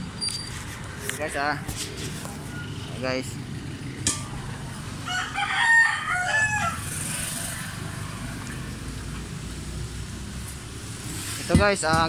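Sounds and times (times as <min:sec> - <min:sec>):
rooster crowing: 0:05.0 - 0:07.6.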